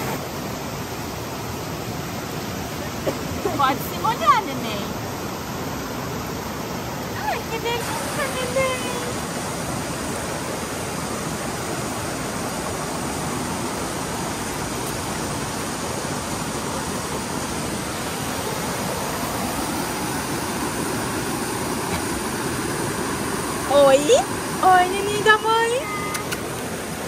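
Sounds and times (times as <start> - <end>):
waterfall rushing: 0.0 - 27.0.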